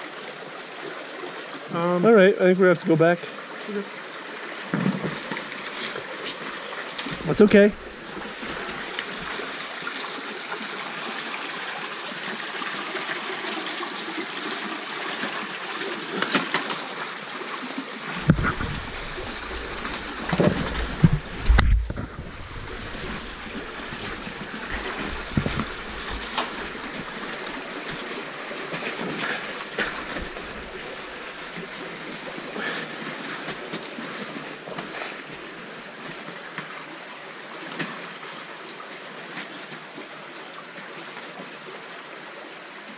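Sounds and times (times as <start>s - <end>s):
creek trickling over rocks: 0.0s - 42.9s
low thumps and rumbles: 18.2s - 27.5s.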